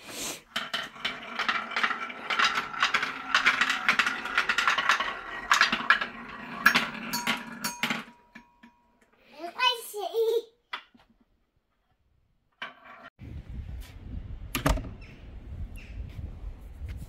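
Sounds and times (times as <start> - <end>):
wooden pieces clattering down ramp: 0.6 - 8.1.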